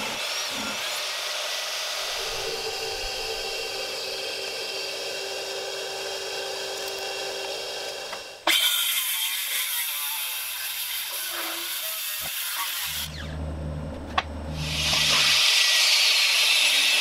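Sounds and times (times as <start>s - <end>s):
motor hum: 2.0s - 8.5s, 12.8s - 15.4s.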